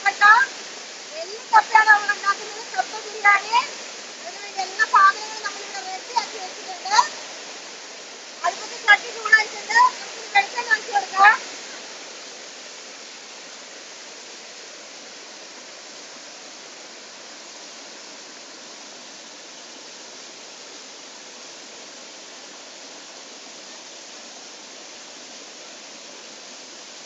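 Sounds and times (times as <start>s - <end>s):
waterfall and stream rushing: 0.0s - 27.0s.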